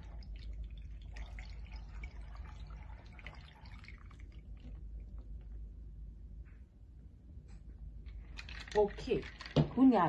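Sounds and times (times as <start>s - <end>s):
liquid splashing and dripping: 0.0s - 5.6s
low steady hum: 0.0s - 10.0s.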